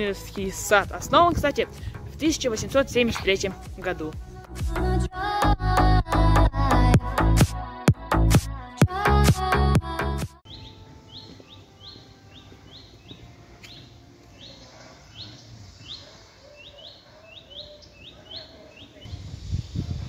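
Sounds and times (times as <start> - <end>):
songbird chirping: 10.4 - 19.3.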